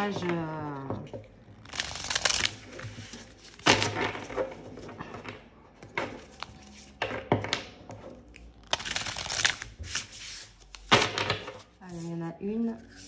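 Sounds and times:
cards shuffling: 1.6 - 4.3, 8.4 - 12.1.

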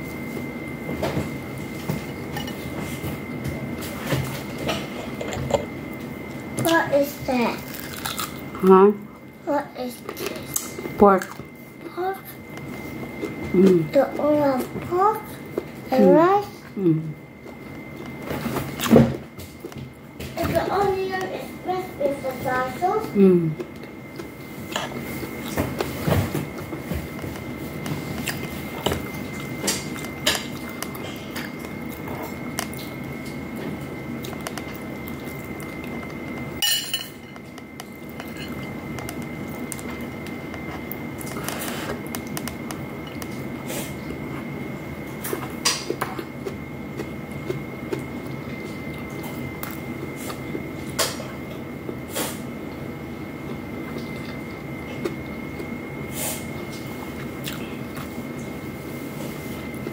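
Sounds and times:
room hum with high whine: 0.0 - 59.9
chewing: 7.6 - 8.5, 23.6 - 36.6, 45.2 - 52.0, 53.4 - 55.8, 56.5 - 58.5.

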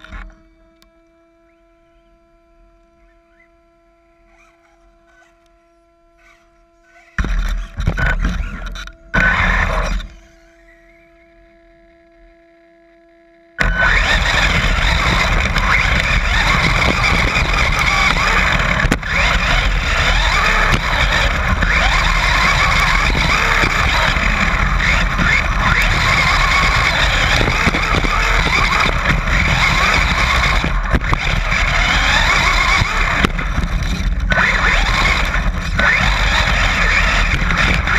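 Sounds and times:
faint steady hum: 0.0 - 37.9
toy truck tyres on gravel: 6.2 - 11.4, 13.6 - 37.9
wind on camera: 13.6 - 37.9.

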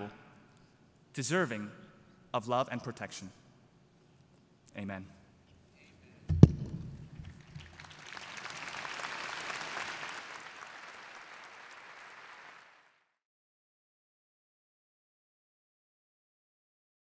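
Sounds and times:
loud thump on microphone: 6.3 - 7.3
large crowd applauding: 7.2 - 13.2.

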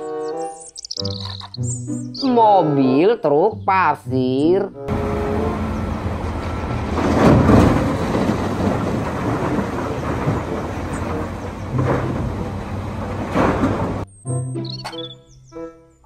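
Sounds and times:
earth pouring into truck bed: 6.2 - 14.0.

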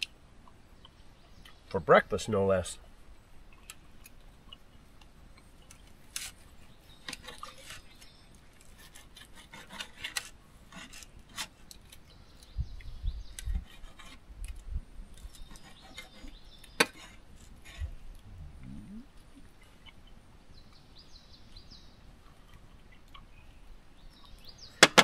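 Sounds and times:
dull low thumps: 17.8 - 19.2.

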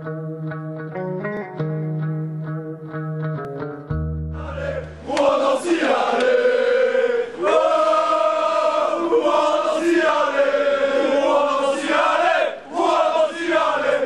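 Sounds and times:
crowd chanting in unison: 4.4 - 14.0.

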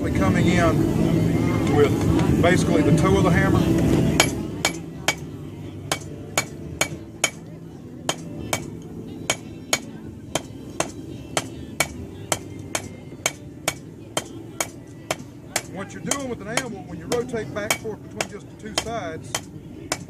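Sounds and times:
hammer striking steel on anvil: 4.2 - 5.3, 5.9 - 7.5, 8.1 - 20.0.

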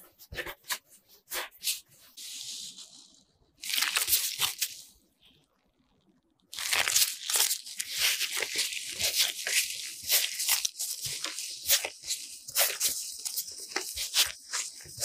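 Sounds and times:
plastic gloves crinkling: 0.1 - 5.1, 6.5 - 15.0
sticky dough tearing: 3.6 - 4.8, 6.5 - 15.0.

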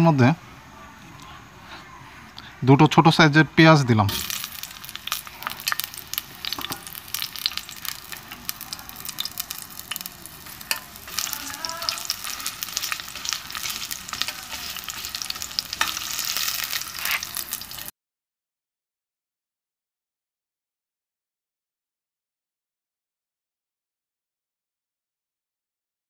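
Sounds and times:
onions sizzling in oil: 4.1 - 17.9
spatula scraping a pot: 9.9 - 17.8.

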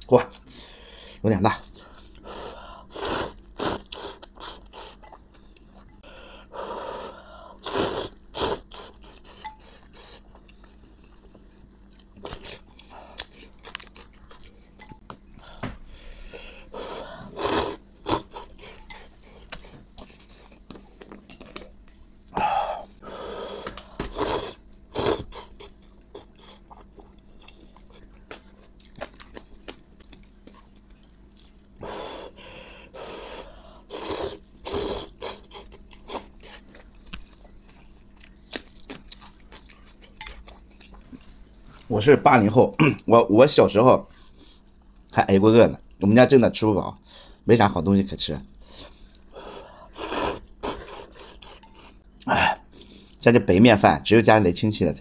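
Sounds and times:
person slurping noodles: 2.3 - 5.0, 6.9 - 9.1, 16.8 - 18.8, 23.5 - 25.6, 33.0 - 36.3, 49.9 - 51.7
chewing and crunching: 8.5 - 15.0, 25.0 - 31.8, 34.5 - 41.9.

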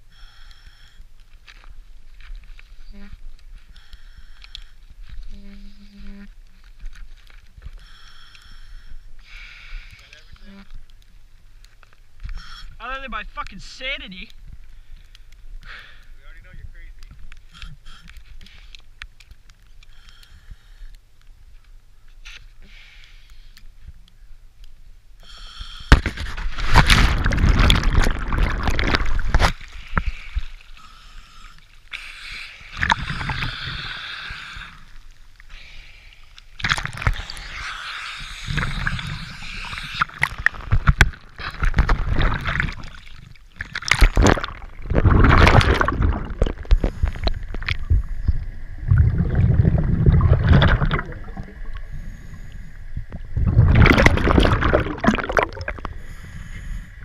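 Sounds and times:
water splashing and gurgling: 25.9 - 35.4, 36.4 - 57.0.

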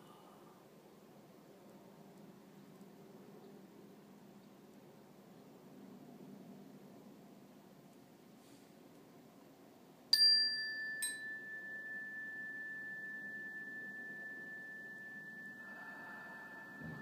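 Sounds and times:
metal chime ringing: 10.2 - 17.0.

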